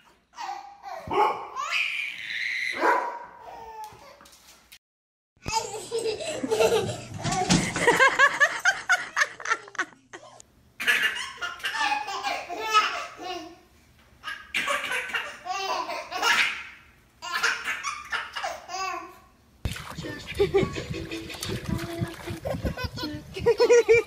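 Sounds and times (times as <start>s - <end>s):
baby laughing: 5.5s - 13.6s, 14.2s - 19.1s, 19.9s - 24.0s.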